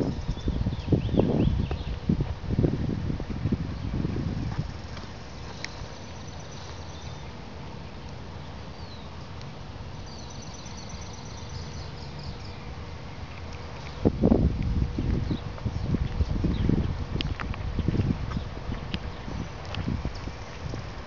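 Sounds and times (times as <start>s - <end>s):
low background rumble: 0.0s - 21.0s
songbird trilling: 10.1s - 12.6s.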